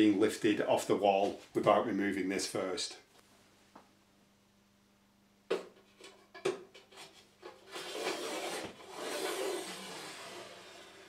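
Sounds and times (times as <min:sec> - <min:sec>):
metal bar scraping along bracket: 0:06.8 - 0:11.0.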